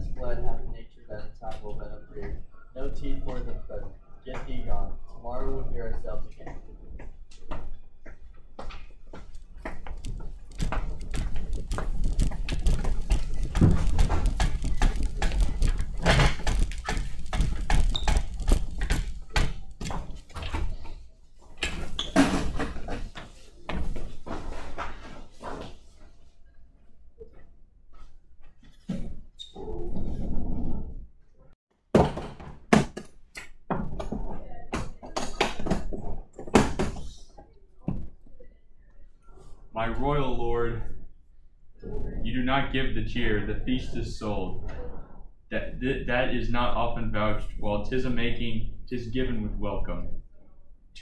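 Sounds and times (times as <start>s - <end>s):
footsteps: 6.0s - 26.3s
folding chairs knocking on floor: 8.6s - 20.9s, 31.9s - 33.1s
handheld camera rumble: 8.9s - 20.7s.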